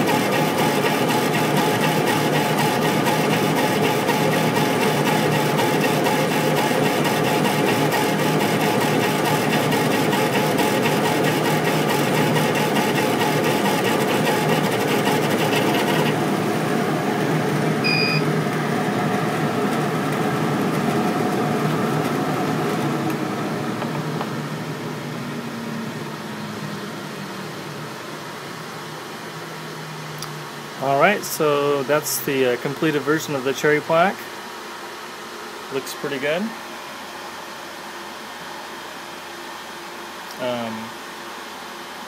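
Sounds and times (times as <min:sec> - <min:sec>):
machine fan hum: 0:00.0 - 0:42.0
short beep: 0:17.8 - 0:18.3.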